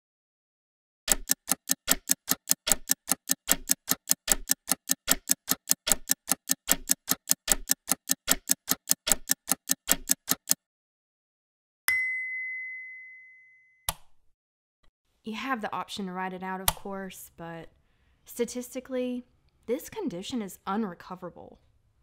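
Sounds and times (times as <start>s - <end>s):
fast even ticking: 1.1s - 10.6s.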